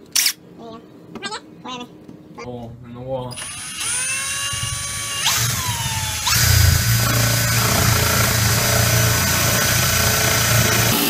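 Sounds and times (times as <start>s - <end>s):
cordless drill boring into drywall: 3.4s - 11.0s.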